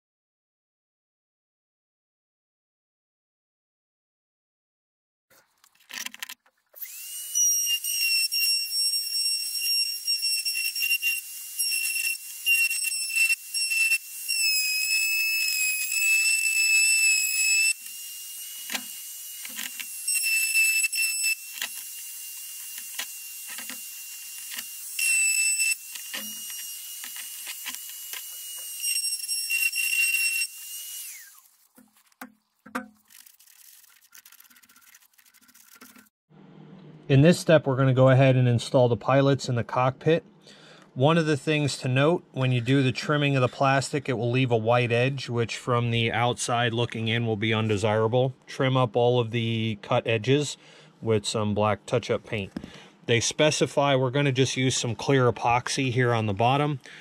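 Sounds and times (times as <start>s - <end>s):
rotary tool whining: 6.8s - 32.3s, 33.0s - 36.1s.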